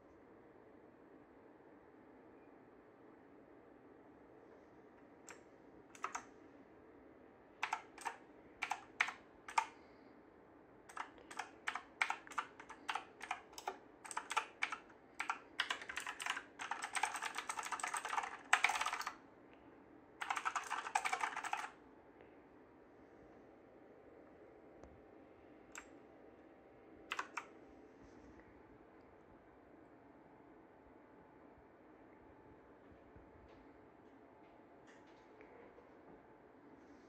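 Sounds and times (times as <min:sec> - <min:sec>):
mechanical keyboard typing: 0:05.3 - 0:06.3, 0:07.6 - 0:09.8, 0:10.9 - 0:19.2, 0:20.2 - 0:21.8, 0:27.1 - 0:27.5.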